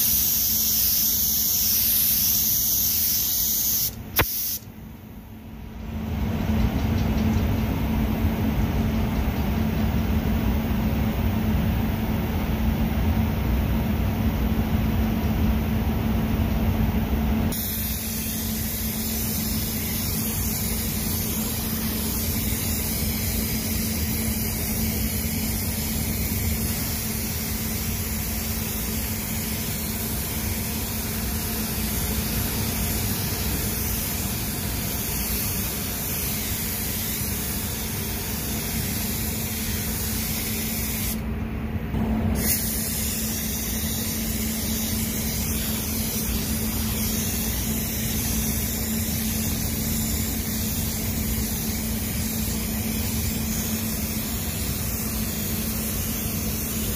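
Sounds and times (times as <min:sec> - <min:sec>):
spray gun hissing: 0:00.0 - 0:04.7, 0:17.5 - 0:41.2, 0:42.3 - 0:56.9
steady low hum: 0:00.0 - 0:56.9.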